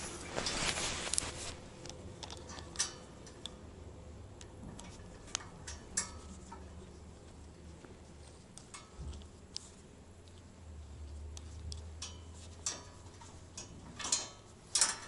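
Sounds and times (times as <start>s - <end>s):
gloves rustling: 0.0s - 2.5s, 6.2s - 13.5s.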